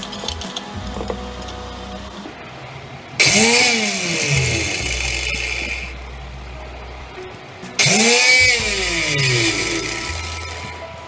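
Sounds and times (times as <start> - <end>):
mixer grinder motor whirring: 3.2 - 6.1, 7.8 - 11.0.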